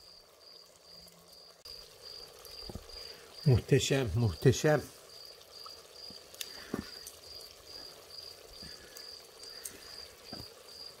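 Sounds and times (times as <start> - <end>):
cricket chirping: 0.0 - 11.0.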